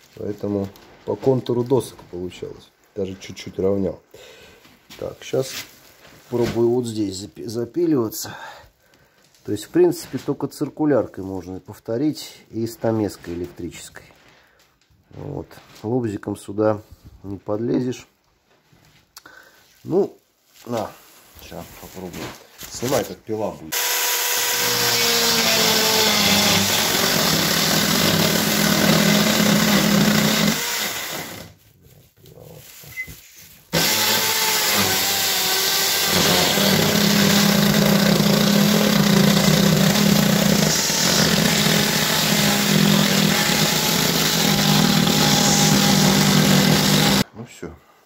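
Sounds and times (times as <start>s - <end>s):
electric saw cutting wood board: 23.7s - 31.5s, 33.7s - 47.2s.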